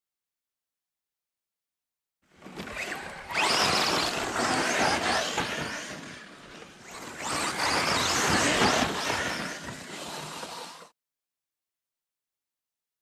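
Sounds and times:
tyres on dirt: 2.3 - 10.9
rc car motor whining: 2.3 - 11.0.

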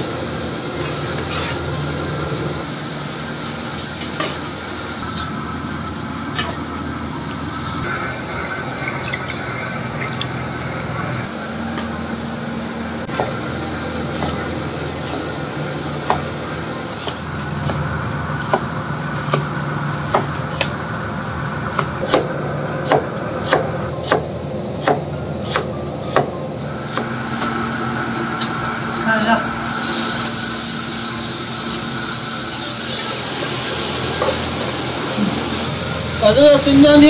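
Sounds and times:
steady hum: 0.0 - 37.0.

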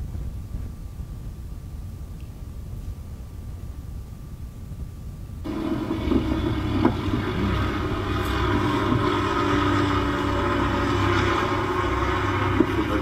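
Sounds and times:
low rumble: 0.0 - 13.0
intense droning music: 5.4 - 13.0.

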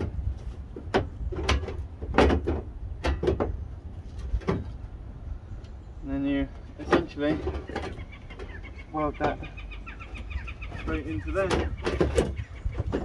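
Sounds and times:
sheet metal knocks and rattles: 0.0 - 3.6, 4.3 - 4.8, 6.8 - 8.6, 10.7 - 13.0.

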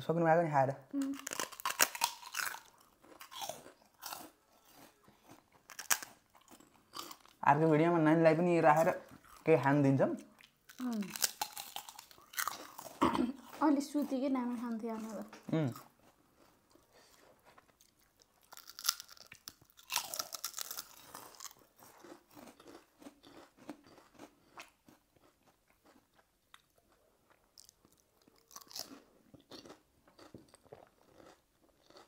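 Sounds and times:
chewing crisp food: 1.0 - 7.7, 8.8 - 9.6, 10.2 - 14.1, 14.7 - 32.0
loud crunching bites: 1.2 - 7.4, 10.7 - 13.0, 18.4 - 24.7, 28.4 - 30.3.

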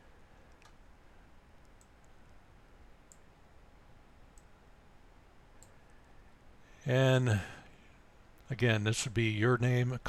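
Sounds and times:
computer mouse clicks: 0.5 - 0.8, 1.6 - 2.4, 3.1 - 3.3, 4.3 - 4.5, 5.6 - 6.0.

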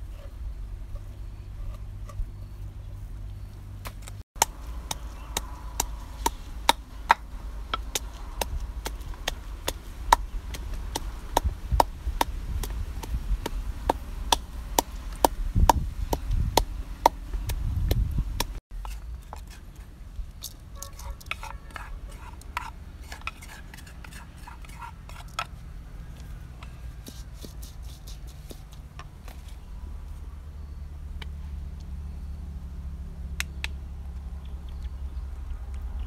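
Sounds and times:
wooden pestle pounding in mortar: 4.4 - 18.6.

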